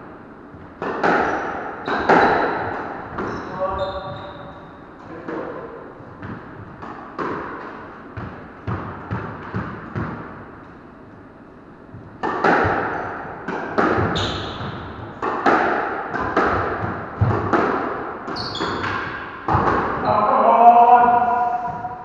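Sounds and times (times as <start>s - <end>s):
squash ball cracking off rackets: 0.8s - 3.5s, 6.2s - 10.4s, 12.2s - 20.0s
shoes squeaking on wooden floor: 3.2s - 4.7s, 14.0s - 14.8s, 18.3s - 20.2s.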